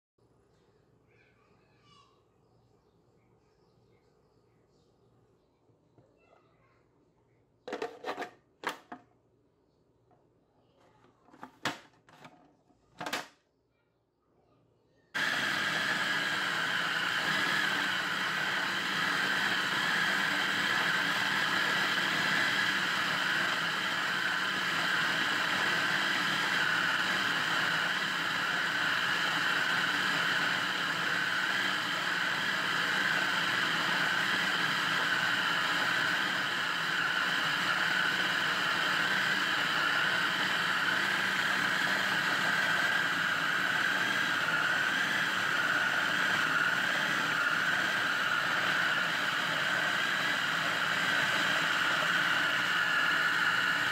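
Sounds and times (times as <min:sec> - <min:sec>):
food processor motor grinding: 0:15.2 - 0:53.9.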